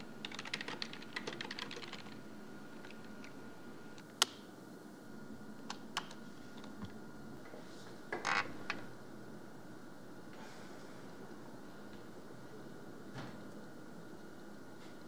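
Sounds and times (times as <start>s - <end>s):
faint electrical whine: 0.0s - 15.0s
keyboard keys clicking: 0.2s - 2.2s.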